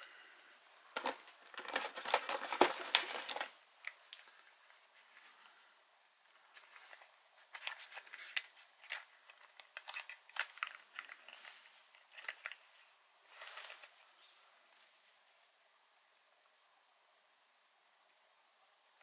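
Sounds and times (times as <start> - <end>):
cardboard crinkling rustles: 0.9 - 5.5, 6.3 - 15.5
cardboard boxes clicking and tapping: 1.0 - 3.5.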